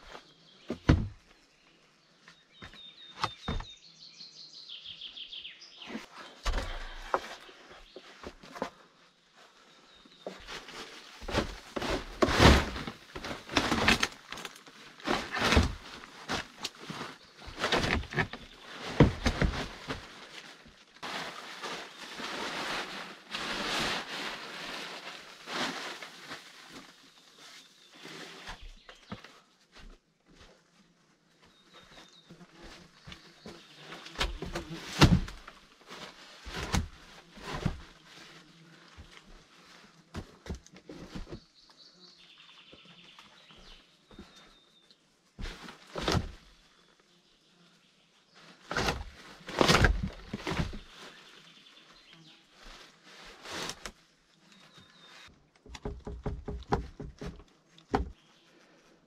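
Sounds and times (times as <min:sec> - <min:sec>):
bird chirping: 0:00.0 - 0:06.8
wooden logs knocking and thudding: 0:00.7 - 0:01.3, 0:02.6 - 0:03.8, 0:05.9 - 0:07.4, 0:11.2 - 0:20.1, 0:34.2 - 0:35.6, 0:36.4 - 0:37.8, 0:45.4 - 0:46.5, 0:48.7 - 0:50.9, 0:55.5 - 0:58.2
rustling and scraping: 0:05.8 - 0:47.1, 0:48.3 - 0:59.0.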